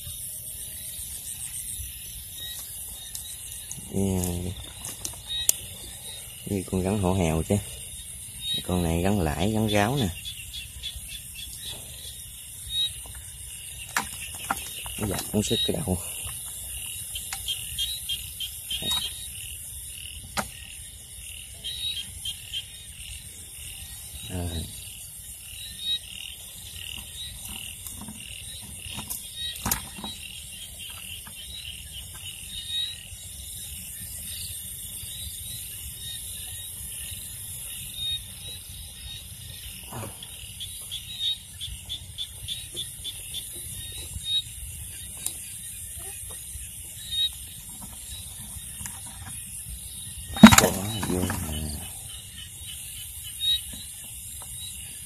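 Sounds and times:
frogs and insects calling: 0.0s - 55.0s
handling clicks and knocks: 13.9s - 15.5s, 50.4s - 51.6s
loud knock of basket on bucket: 50.4s - 51.4s.

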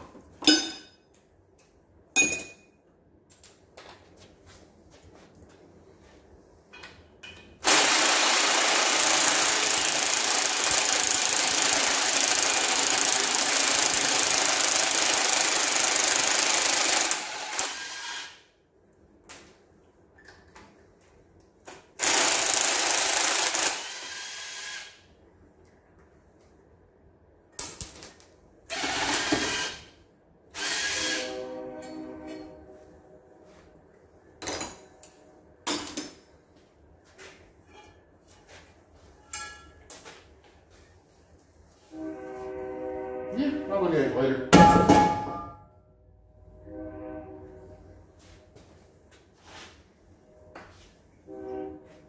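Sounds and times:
power wrench running: 7.6s - 18.4s, 22.0s - 25.0s, 28.7s - 29.9s, 30.5s - 31.2s.

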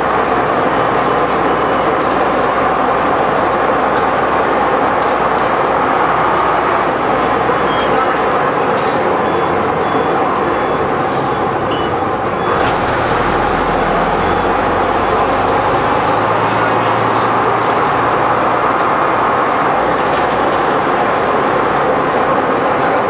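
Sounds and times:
bus engine and road drone: 0.0s - 23.0s
deep engine hum: 9.2s - 22.5s.

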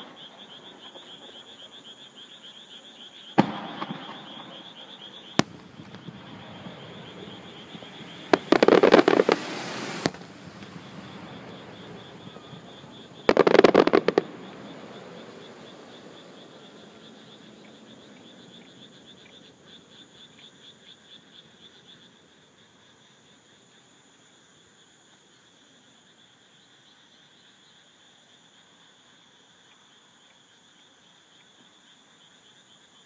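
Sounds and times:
insects and frogs chorus: 0.0s - 33.0s
fireworks bangs: 3.4s - 15.7s
fireworks crackling: 3.4s - 16.1s.

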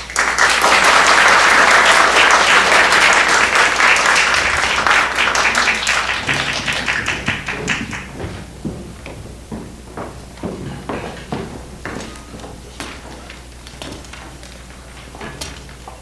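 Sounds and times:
congregation applauding: 0.0s - 8.7s.

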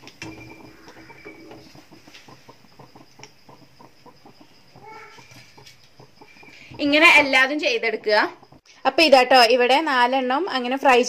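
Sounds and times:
hot oil sizzling and crackling: 0.0s - 9.4s.

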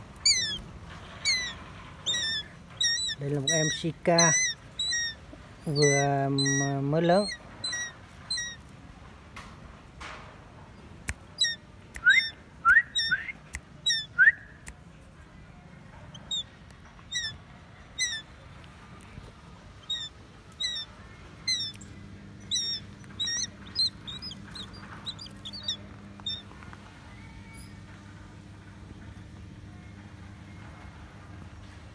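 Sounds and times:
bird calling with high squeals: 0.0s - 8.6s, 11.4s - 14.4s, 16.1s - 16.5s, 17.1s - 18.3s, 19.8s - 21.8s, 22.4s - 26.5s.

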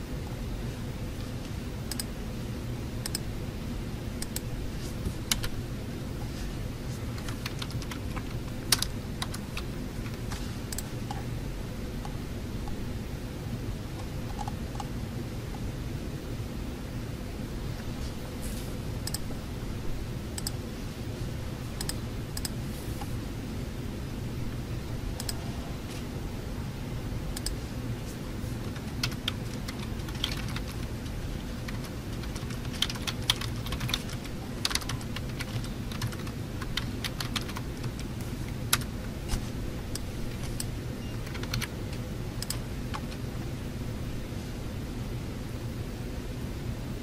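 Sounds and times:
low background hum: 0.0s - 47.0s
computer keyboard typing: 4.2s - 4.5s, 5.2s - 5.6s, 7.1s - 11.2s, 14.0s - 14.9s, 19.0s - 19.3s, 28.6s - 38.9s, 39.9s - 43.2s.

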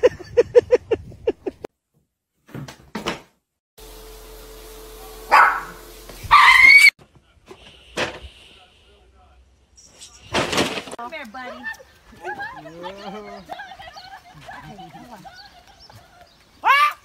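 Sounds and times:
dog barking: 5.3s - 6.9s
dog yipping: 5.3s - 6.9s.

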